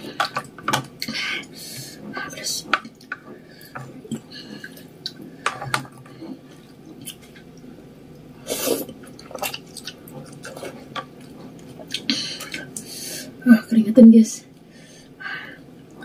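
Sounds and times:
wet chewing: 0:02.2 - 0:12.9
slurping noodles: 0:08.4 - 0:10.9.

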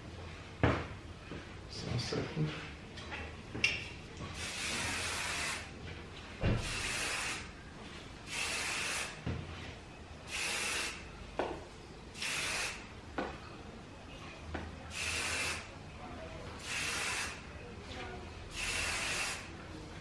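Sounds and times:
aerosol can spraying: 0:04.4 - 0:05.7, 0:06.6 - 0:07.5, 0:08.3 - 0:09.2, 0:12.2 - 0:12.8, 0:14.9 - 0:15.7, 0:16.6 - 0:17.4, 0:18.5 - 0:19.5.

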